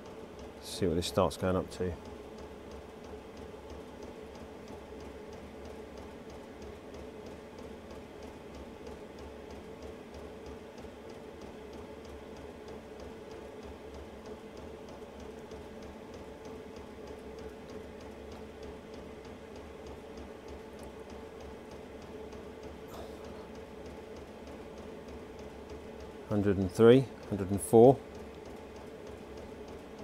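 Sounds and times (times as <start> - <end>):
heater fan humming: 0.0 - 30.0
fuel pump ticking rapidly: 19.8 - 30.0.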